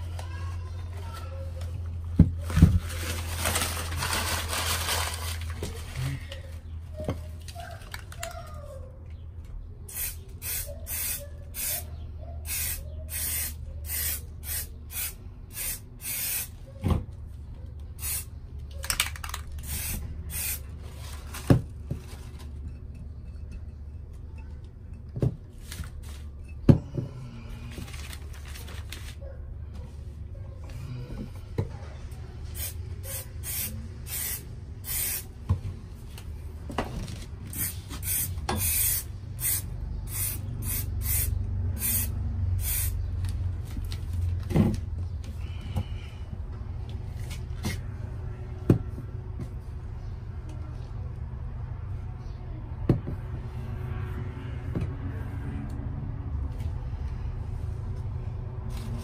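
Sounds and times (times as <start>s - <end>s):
spray paint can hissing: 9.9s - 11.9s, 12.5s - 16.6s, 18.0s - 18.3s, 19.6s - 20.6s, 32.6s - 35.3s, 37.5s - 43.0s.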